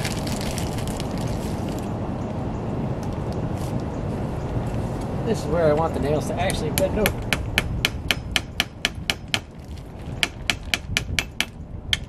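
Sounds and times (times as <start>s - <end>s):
hatchet tapping nails: 6.5s - 9.5s, 10.2s - 12.0s.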